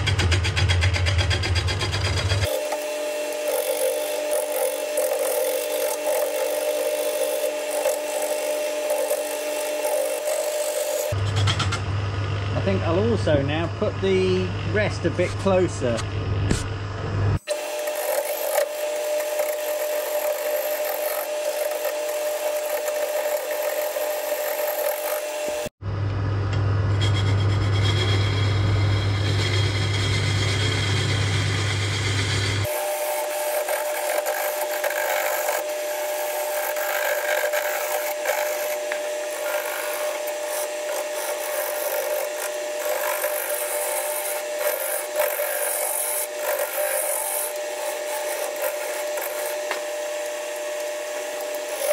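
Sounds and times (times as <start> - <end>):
gouge scraping wood: 0.0 - 11.2, 17.4 - 25.8, 32.6 - 51.9
lathe humming: 1.9 - 15.7, 17.4 - 25.8, 26.5 - 51.9.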